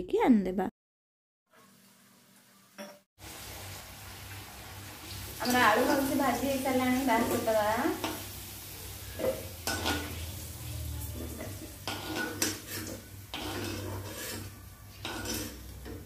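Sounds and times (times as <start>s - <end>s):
oil sizzling: 1.5s - 16.0s
metal spatula clinking and scraping: 9.1s - 10.2s, 11.1s - 16.0s.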